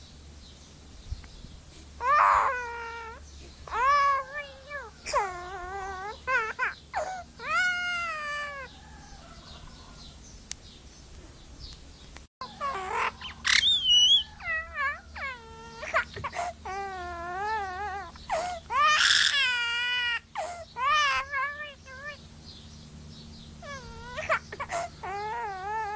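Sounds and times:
myna imitating baby crying: 2.0 - 8.8, 12.4 - 22.2, 23.6 - 25.9
bird whistled notes: 13.3 - 14.4.

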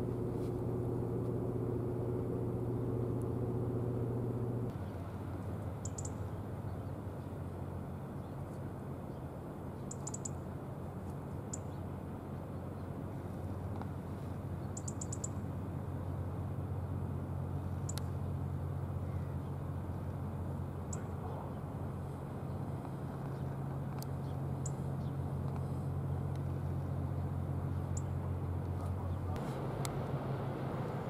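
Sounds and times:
ship machinery droning: 0.0 - 4.7.

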